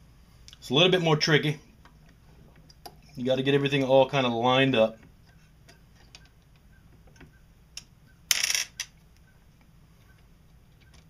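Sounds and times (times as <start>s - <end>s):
metal parts clattering: 8.3s - 8.9s
small metal parts clinking: 8.3s - 9.0s.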